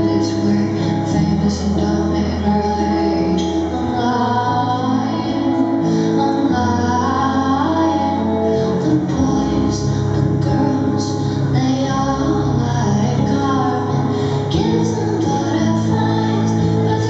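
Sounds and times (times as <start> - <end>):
woman singing: 0.0 - 17.0.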